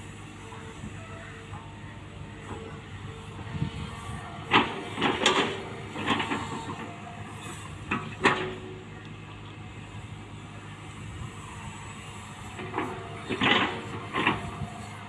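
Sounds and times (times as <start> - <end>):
excavator diesel engine running: 0.0 - 15.0.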